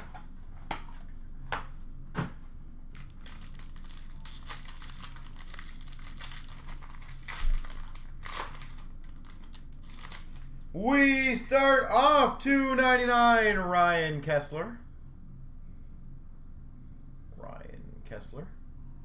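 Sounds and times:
plastic wrapping crinkling and tearing: 0:02.9 - 0:10.7.

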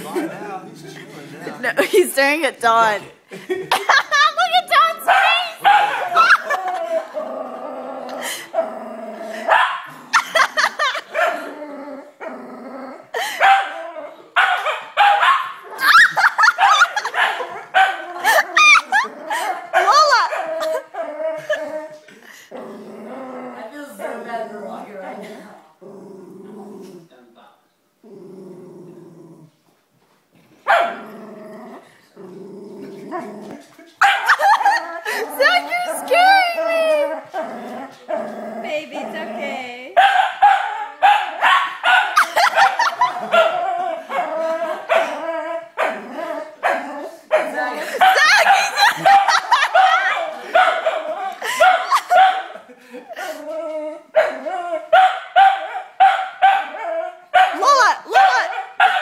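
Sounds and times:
puppy barking: 0:05.1 - 0:06.4, 0:14.4 - 0:15.6, 0:16.4 - 0:18.8, 0:30.7 - 0:31.0, 0:34.0 - 0:34.6, 0:40.0 - 0:44.2, 0:46.6 - 0:52.6, 0:55.0 - 0:56.8, 0:57.4 - 0:59.0
puppy growling: 0:05.5 - 0:14.3, 0:15.7 - 0:27.2, 0:28.0 - 0:29.6, 0:30.4 - 0:39.9, 0:42.2 - 0:54.9
puppy barking and yipping: 0:48.0 - 0:52.5, 0:57.4 - 0:59.0.

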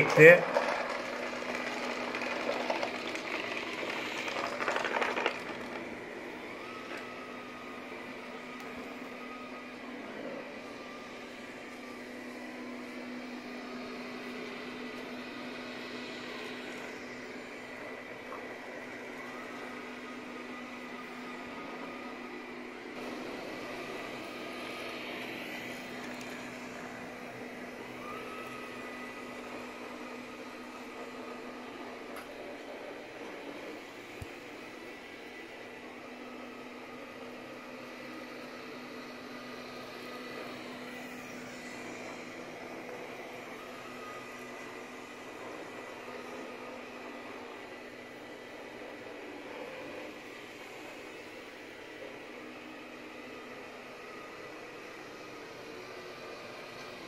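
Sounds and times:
seeds rattling in vacuum: 0:00.0 - 0:05.8
robot vacuum whirring: 0:00.0 - 0:57.0.

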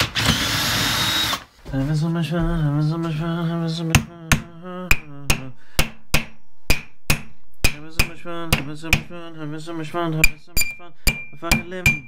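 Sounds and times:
hammer striking metal: 0:04.3 - 0:09.1, 0:10.2 - 0:12.0.

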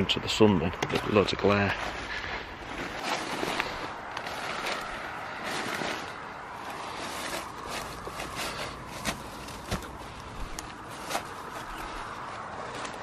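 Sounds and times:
footsteps through dry leaves: 0:01.1 - 0:13.0
twigs snapping underfoot: 0:02.8 - 0:13.0.

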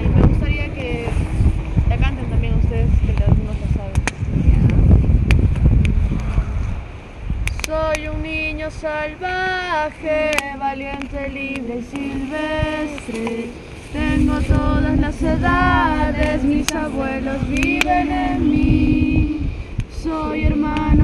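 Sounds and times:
wind rumble on microphone: 0:00.0 - 0:21.0
women singing together: 0:07.7 - 0:21.0.

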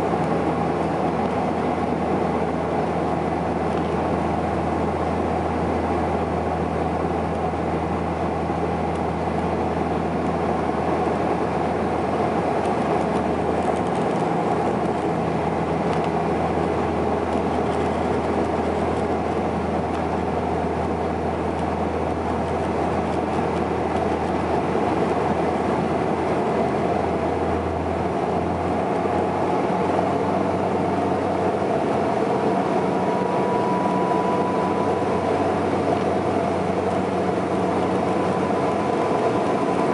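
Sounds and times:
propeller plane cabin drone: 0:00.0 - 0:39.9
faint high whine: 0:30.2 - 0:39.9.

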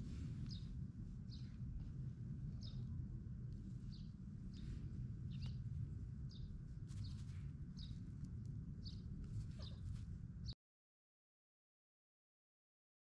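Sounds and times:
low background rumble: 0:00.0 - 0:10.6
bird chirping: 0:05.3 - 0:05.6, 0:08.8 - 0:09.9.

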